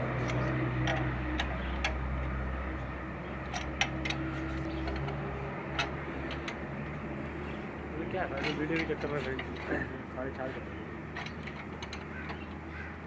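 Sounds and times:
wrenches clinking on metal: 3.4 - 6.6, 8.0 - 9.9, 11.1 - 12.8.

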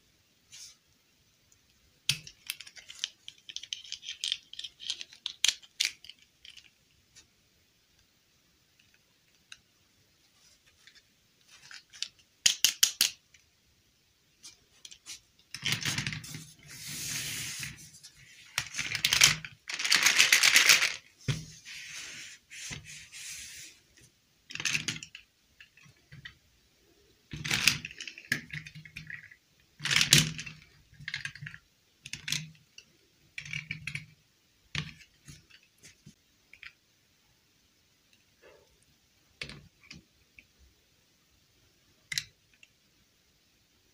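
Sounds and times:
plastic dolls clicking: 2.1 - 6.8, 11.8 - 13.4, 18.6 - 21.0
plastic dolls rattling and scraping: 2.1 - 6.8, 10.5 - 13.2, 14.4 - 23.8, 24.5 - 26.4, 27.3 - 32.4.

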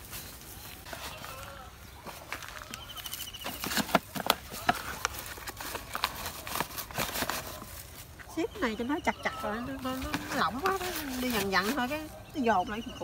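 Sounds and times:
plant pots knocking and clattering: 2.0 - 7.6.

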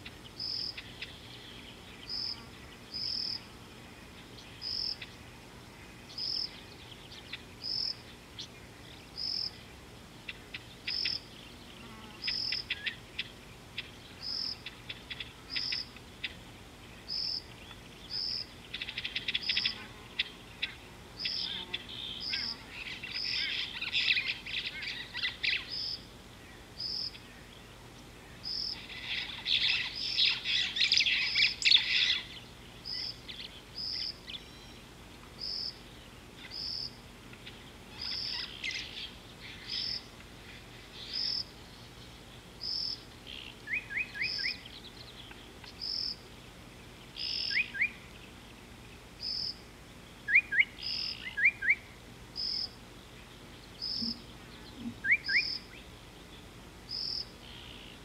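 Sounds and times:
birds chattering: 0.0 - 58.0
rising bird whistles: 55.0 - 55.6.

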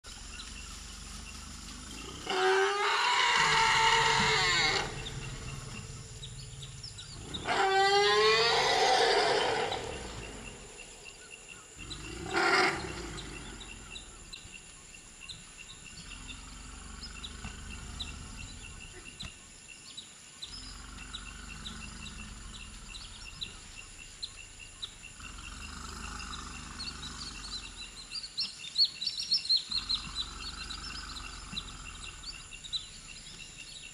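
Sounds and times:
elephant low rumbling: 0.1 - 19.3, 20.5 - 28.2, 29.6 - 33.9
elephant calls: 0.3 - 14.2.

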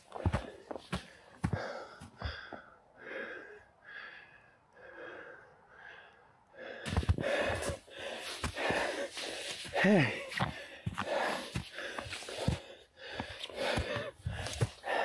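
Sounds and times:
footsteps crunching in snow: 0.0 - 1.8, 6.9 - 15.0
man panting: 0.0 - 15.0.

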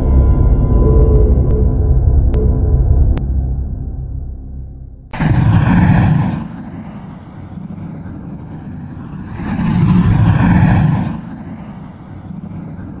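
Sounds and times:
low noisy rumble: 0.0 - 13.0
whoosh swell: 5.2 - 13.0.

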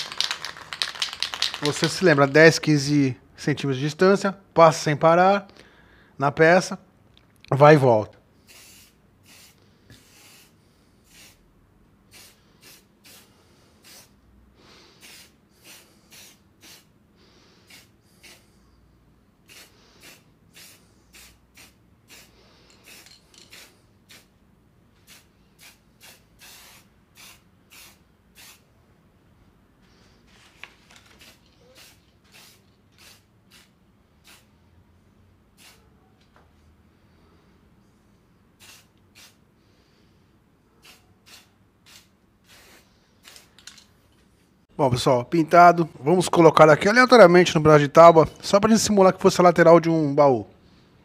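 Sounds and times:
spray paint can hissing: 0.0 - 2.2, 8.4 - 11.4, 12.1 - 14.1, 15.0 - 16.9, 17.6 - 18.4, 19.4 - 24.3, 25.0 - 28.7, 31.1 - 34.5, 35.6 - 35.8, 38.6 - 39.4, 40.8 - 43.6.

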